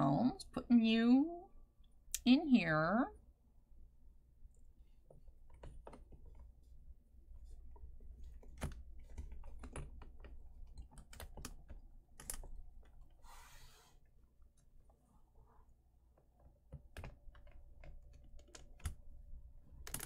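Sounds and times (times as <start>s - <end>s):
plastic parts knocking and clicking: 8.2s - 13.0s.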